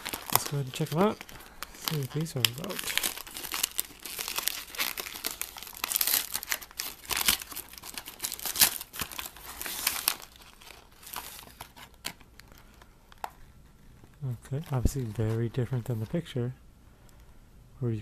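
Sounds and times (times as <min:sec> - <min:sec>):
paper and foil bag crinkling: 0:00.0 - 0:12.9.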